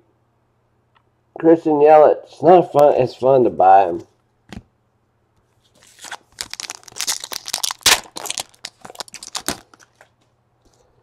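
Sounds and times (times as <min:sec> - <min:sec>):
foil wrapper crinkling and tearing: 0:05.8 - 0:10.2.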